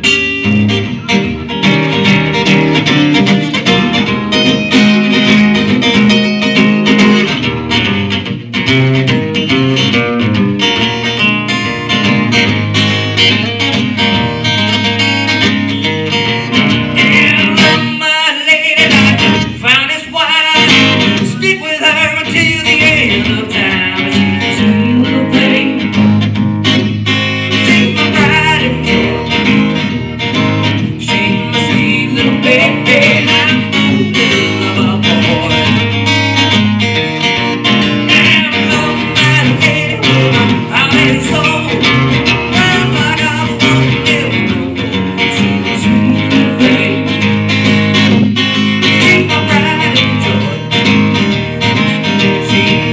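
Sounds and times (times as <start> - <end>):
acoustic guitar country song: 0.0 - 52.9.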